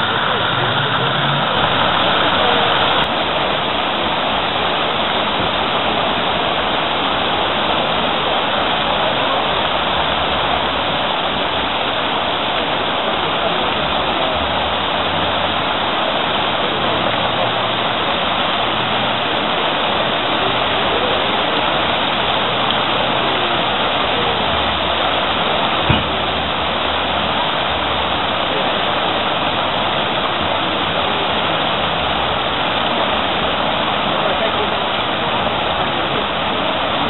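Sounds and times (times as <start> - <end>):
fountain splashing into basin: 0.0 - 37.0
sharp knock: 25.9 - 26.1.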